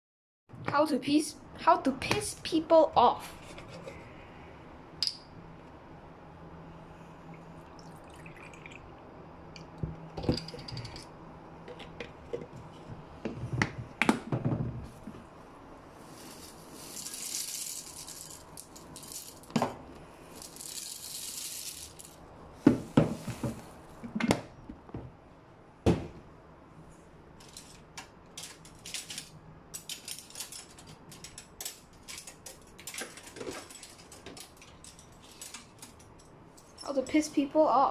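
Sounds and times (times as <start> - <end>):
cereal pouring into a bowl: 16.1 - 19.5, 20.3 - 22.2.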